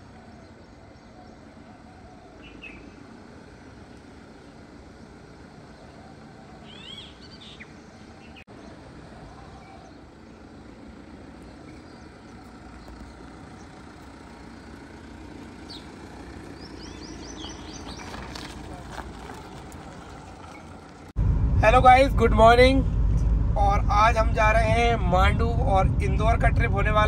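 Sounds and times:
bird chirping: 0:00.0 - 0:03.2, 0:05.0 - 0:20.8
low rumble: 0:20.9 - 0:27.0.

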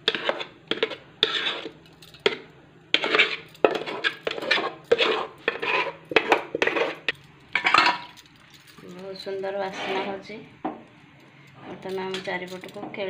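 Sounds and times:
steel pan and plate clattering: 0:03.0 - 0:08.2
scrapes and sharp clinks: 0:03.0 - 0:10.3, 0:11.2 - 0:12.9.

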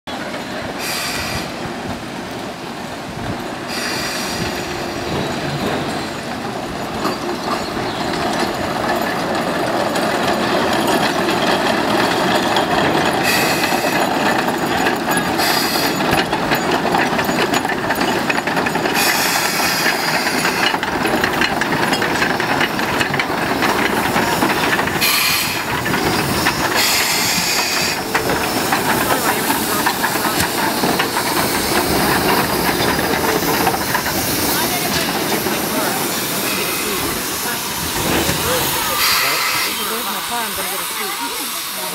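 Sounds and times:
steam locomotive running gear: 0:00.1 - 0:41.9
steam hissing bursts: 0:00.7 - 0:01.9, 0:03.6 - 0:06.4, 0:13.2 - 0:14.5, 0:15.2 - 0:16.3, 0:18.9 - 0:41.9.

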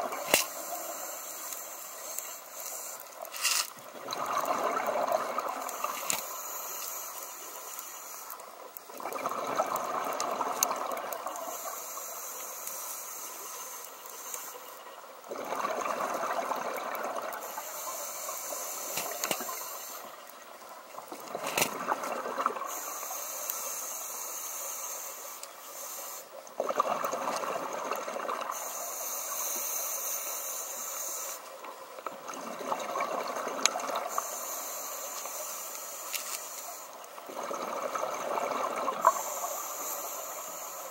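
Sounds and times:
regulator inhale hiss: 0:00.1 - 0:03.7, 0:05.4 - 0:08.6, 0:11.2 - 0:15.0, 0:17.3 - 0:20.4, 0:22.6 - 0:26.5, 0:28.5 - 0:31.6, 0:34.0 - 0:37.2, 0:38.9 - 0:40.9
exhaled bubbles rushing: 0:03.9 - 0:05.9, 0:08.9 - 0:11.4, 0:15.3 - 0:17.4, 0:26.6 - 0:28.6, 0:32.2 - 0:34.1, 0:37.2 - 0:39.2.

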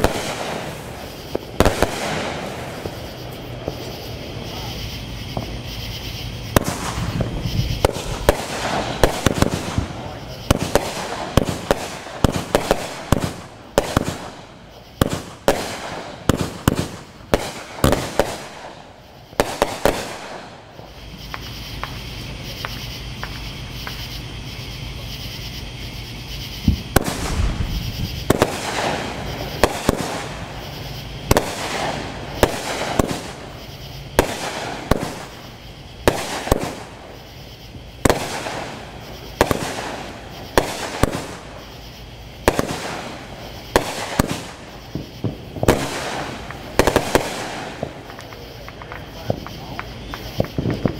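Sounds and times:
firework reports with crackling: 0:00.0 - 0:50.9.

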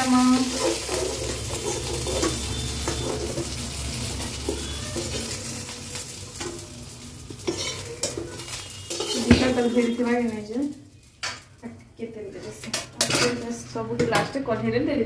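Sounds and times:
fish sizzling in hot oil: 0:00.0 - 0:11.6
metal spatula scraping a pan: 0:00.1 - 0:11.1.

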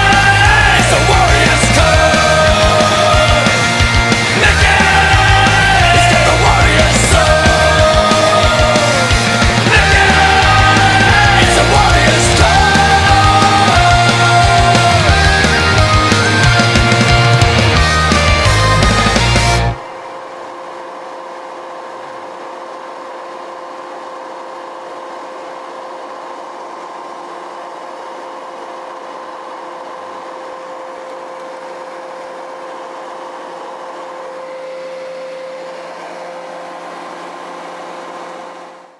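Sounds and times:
rock music: 0:00.0 - 0:20.0
leaf blower droning: 0:00.0 - 0:38.9.

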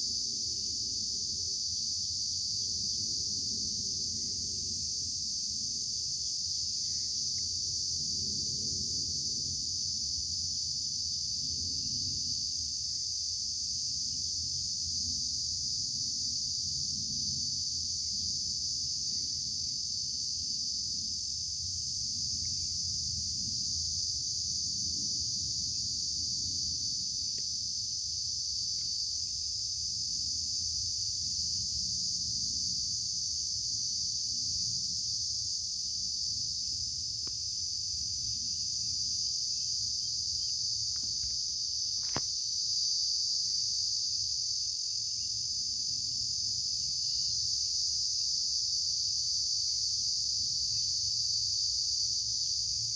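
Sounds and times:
high-pitched insect chorus: 0:00.0 - 0:52.9.

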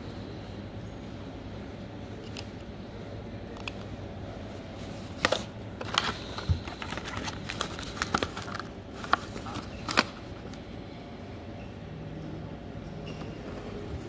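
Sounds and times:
blister packaging crinkling: 0:05.1 - 0:10.5.

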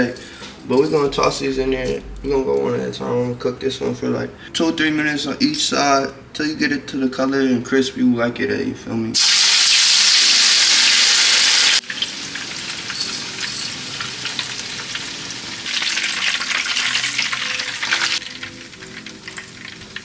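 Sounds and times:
pork chops sizzling in a frying pan: 0:09.2 - 0:20.0.

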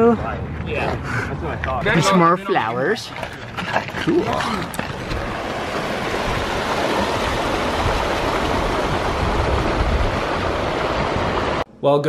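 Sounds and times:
creek rushing over rocks: 0:03.2 - 0:11.6.

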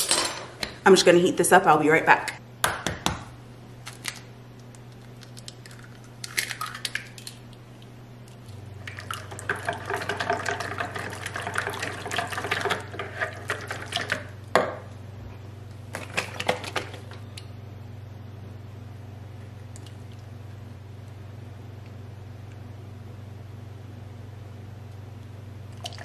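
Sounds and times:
whisk beating egg in bowl: 0:09.1 - 0:14.3.

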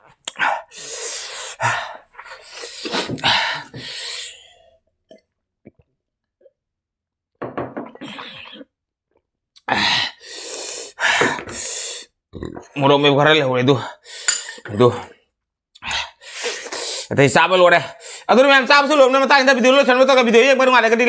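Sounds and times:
person breathing out hard: 0:00.3 - 0:04.8, 0:09.7 - 0:12.1.

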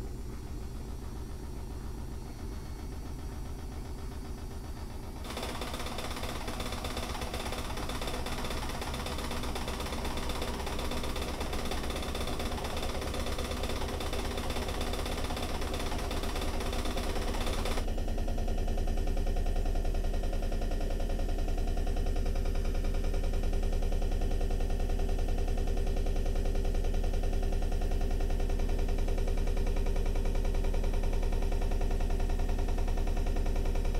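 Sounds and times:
low mechanical rumble and hum: 0:00.0 - 0:33.9.

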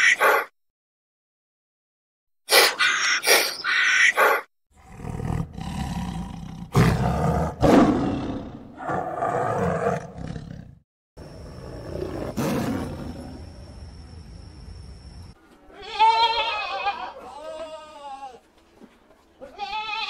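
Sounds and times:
big cat roaring: 0:04.8 - 0:10.8, 0:11.4 - 0:13.5.

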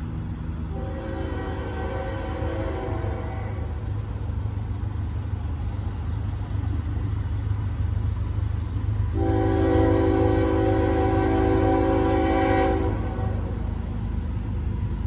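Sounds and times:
low steady rumble: 0:00.0 - 0:15.0
locomotive air horn chord: 0:00.7 - 0:03.9, 0:09.1 - 0:13.6.

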